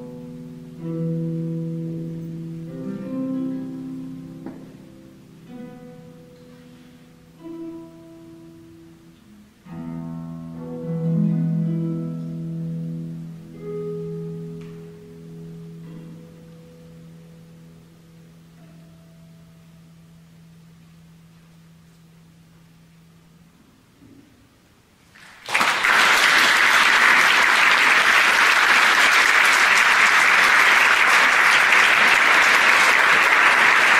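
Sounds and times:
harp plucked notes and chords: 0:00.0 - 0:23.1
audience applauding: 0:25.1 - 0:33.9.

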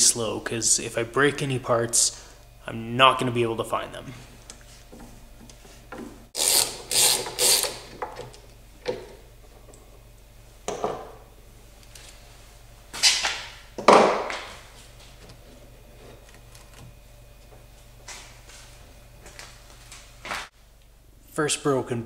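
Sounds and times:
ratchet wrench clicking: 0:06.4 - 0:07.8.

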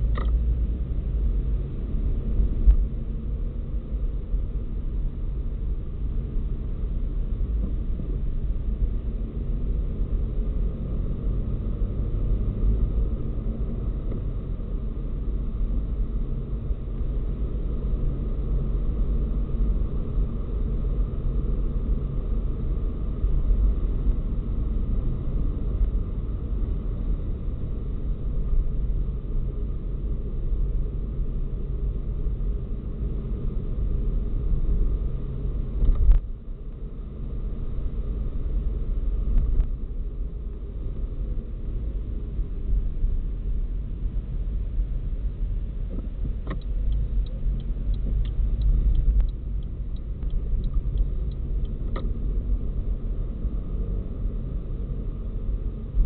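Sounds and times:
car engine and road noise: 0:00.0 - 0:56.0
light ticks: 0:45.9 - 0:52.1.

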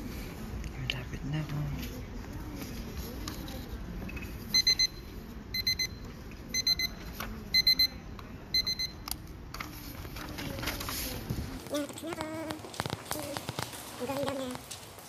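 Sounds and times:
timer high-pitched beeps: 0:04.5 - 0:09.0.

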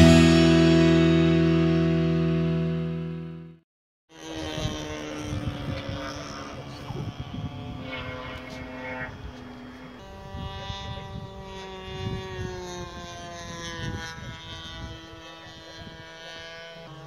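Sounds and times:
propeller aircraft droning overhead: 0:00.0 - 0:02.8, 0:04.1 - 0:17.0
wind rumbling on microphone: 0:04.2 - 0:17.0.

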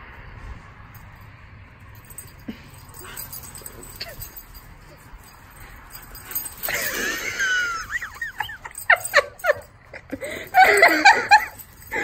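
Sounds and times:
dogs whining and yipping: 0:03.0 - 0:12.0.

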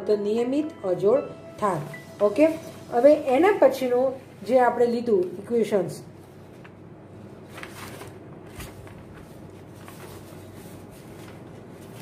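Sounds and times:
low hum and hiss: 0:00.0 - 0:12.0.

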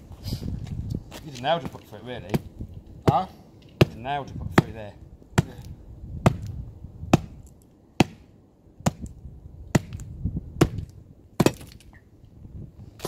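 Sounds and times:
tool striking battery on bricks: 0:05.4 - 0:12.0.

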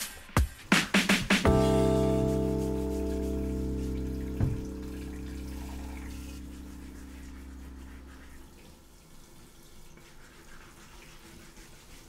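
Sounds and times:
background music: 0:00.0 - 0:08.6
tap running: 0:04.4 - 0:06.2
brush scrubbing wooden board: 0:06.1 - 0:08.6, 0:09.9 - 0:12.0.

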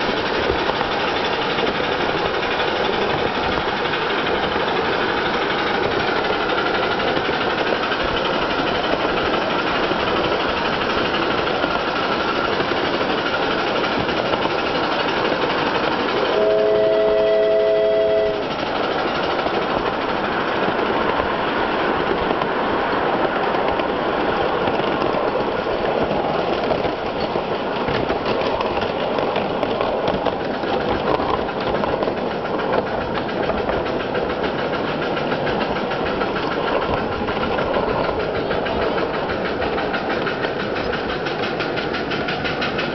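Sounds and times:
miniature steam locomotive running: 0:00.0 - 0:42.9
steam whistle chord: 0:16.3 - 0:18.5.

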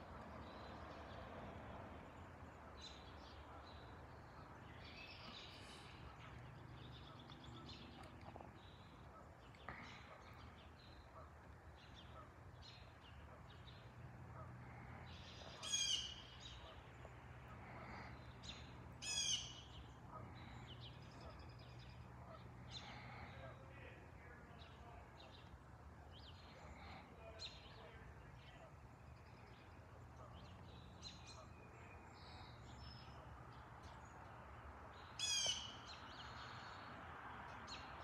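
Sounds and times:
birds chirping and calling: 0:15.3 - 0:16.8, 0:17.6 - 0:22.0, 0:35.2 - 0:36.6.

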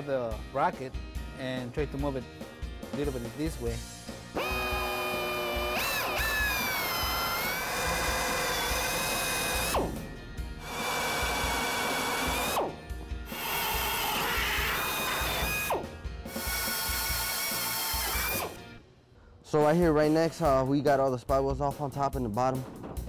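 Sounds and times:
pneumatic air drill whining: 0:04.3 - 0:18.7.

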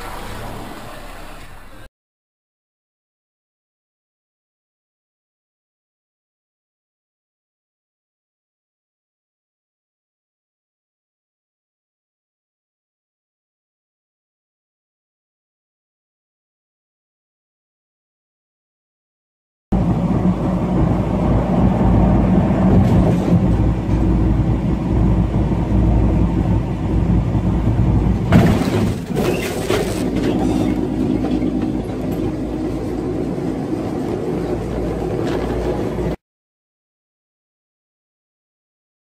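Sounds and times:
low drone: 0:00.0 - 0:01.9, 0:19.7 - 0:28.7, 0:29.9 - 0:36.2
truck engine and road rumble: 0:00.0 - 0:01.9, 0:19.7 - 0:36.2
loud crash and clatter: 0:28.2 - 0:32.3.

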